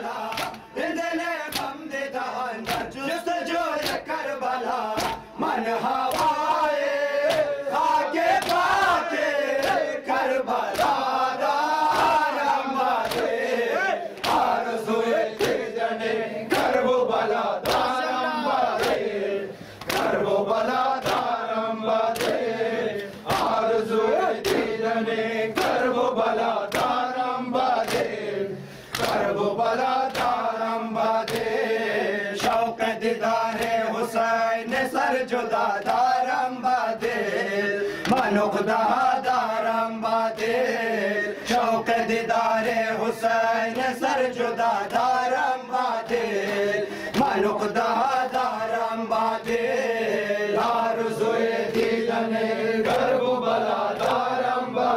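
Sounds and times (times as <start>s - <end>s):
lead reciter on microphone: 0.0s - 19.8s
crowd of men chanting: 0.0s - 54.9s
hands slapping chests: 0.2s - 0.7s, 1.5s - 1.8s, 2.6s - 3.0s, 3.8s - 4.1s, 4.9s - 5.3s, 6.0s - 6.6s, 7.2s - 7.6s, 8.3s - 8.8s, 9.6s - 9.9s, 10.7s - 11.1s, 12.9s - 13.4s, 14.1s - 14.6s, 15.3s - 15.7s, 17.6s - 18.0s, 18.7s - 19.1s, 19.8s - 20.2s, 21.0s - 21.4s, 22.1s - 22.4s, 24.4s - 24.7s, 26.7s - 27.0s, 27.8s - 28.1s, 28.9s - 29.4s, 30.1s - 30.4s, 31.2s - 31.6s, 33.5s - 33.8s, 38.0s - 38.4s, 46.1s - 47.4s, 52.8s - 53.2s, 53.9s - 54.3s.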